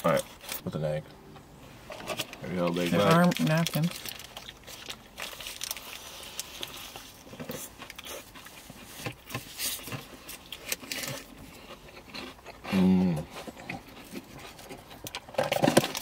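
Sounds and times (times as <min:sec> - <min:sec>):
biting and chewing crispy food: 0:01.9 - 0:16.0
person humming mmm: 0:12.7 - 0:13.3.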